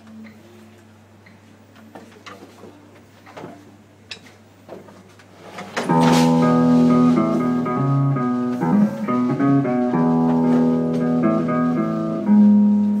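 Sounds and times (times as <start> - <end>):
live band playing chords: 5.9 - 13.0.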